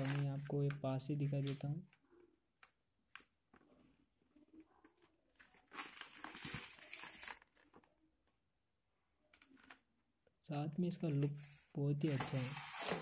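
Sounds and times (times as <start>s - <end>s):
cardboard scraping rustle: 12.0s - 13.0s.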